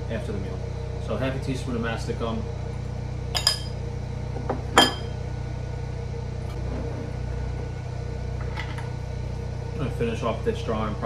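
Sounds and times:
generator humming: 0:00.0 - 0:11.0
metal spoon clinking on ceramic bowl: 0:03.4 - 0:03.8, 0:04.8 - 0:05.1.

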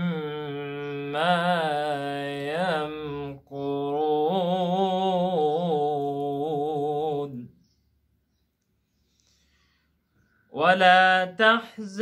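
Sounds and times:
man reciting melodically: 0:00.0 - 0:07.6, 0:10.4 - 0:12.0.

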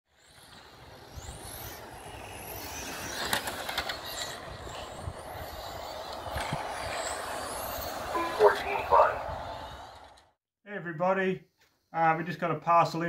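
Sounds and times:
rc car motors whining: 0:00.1 - 0:10.3
steady rushing noise: 0:00.4 - 0:10.3.

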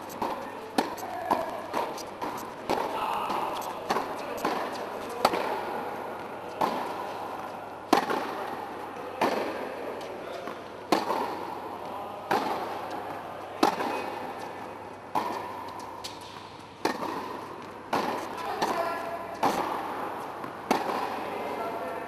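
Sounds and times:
tennis racket hitting ball: 0:00.0 - 0:22.0.

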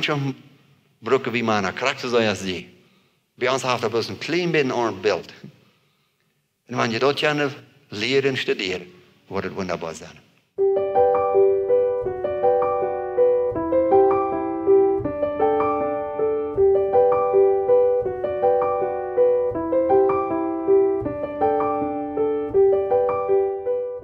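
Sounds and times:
gentle piano music: 0:10.6 - 0:24.0.

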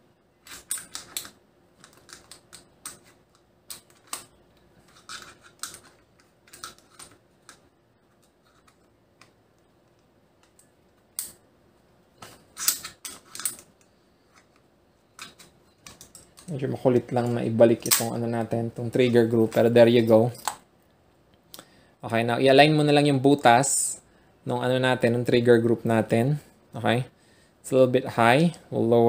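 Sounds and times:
shotgun parts clicking: 0:15.2 - 0:18.3.

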